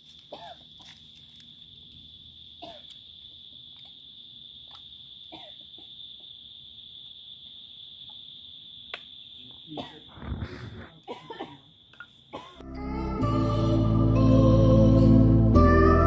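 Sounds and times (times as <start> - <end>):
high-pitched insect trill: 0.0 - 10.4
faint chirps and clicks: 8.0 - 9.6.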